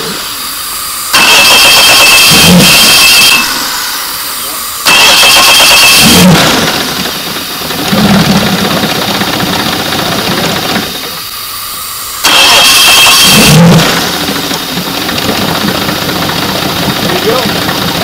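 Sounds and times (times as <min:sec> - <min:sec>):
electric starter cranking: 0:01.1 - 0:03.9, 0:04.8 - 0:11.2, 0:12.2 - 0:18.0
outboard engine running: 0:04.3 - 0:11.3, 0:12.2 - 0:18.0.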